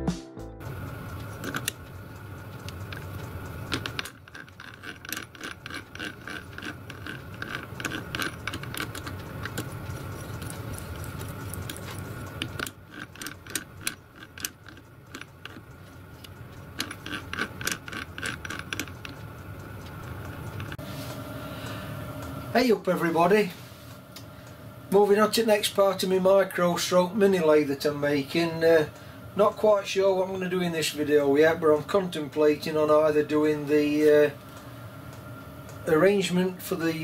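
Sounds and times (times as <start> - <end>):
faint steady hum: 0.6 - 37.0
metallic clicks and rattles of lathe gears: 0.8 - 10.0, 11.7 - 20.8.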